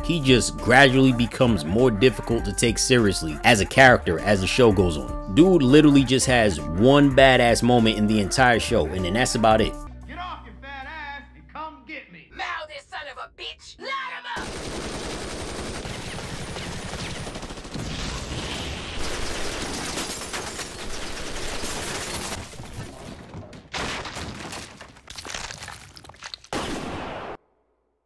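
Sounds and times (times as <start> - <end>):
automatic gunfire: 14.4 - 17.9.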